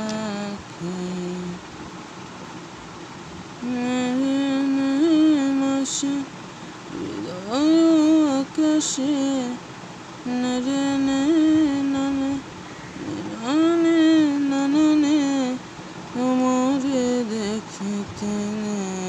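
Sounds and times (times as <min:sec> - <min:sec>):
person humming a slow melody: 0:00.0 - 0:01.6, 0:03.6 - 0:06.3, 0:06.9 - 0:09.6, 0:10.3 - 0:15.6, 0:16.2 - 0:19.0.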